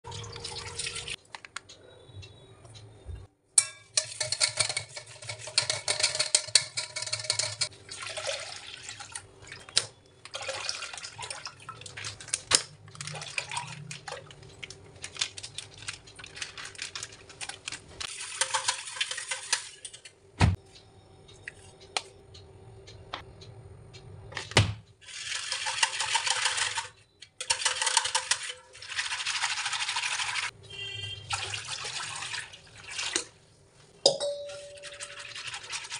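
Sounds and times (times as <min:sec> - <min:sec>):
whisk rattling against steel bowl: 0:03.6 - 0:07.7, 0:15.1 - 0:20.0, 0:25.4 - 0:30.5, 0:34.2 - 0:35.9.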